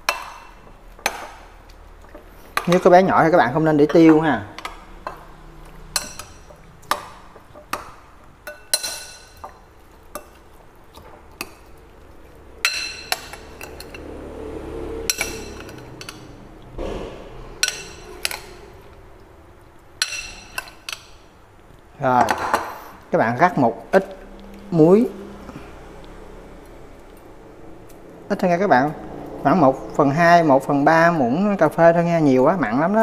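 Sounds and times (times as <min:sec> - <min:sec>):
metal spoon clinking on ceramic bowl: 0:05.9 - 0:09.5, 0:12.6 - 0:14.0, 0:15.1 - 0:16.3, 0:20.0 - 0:21.2.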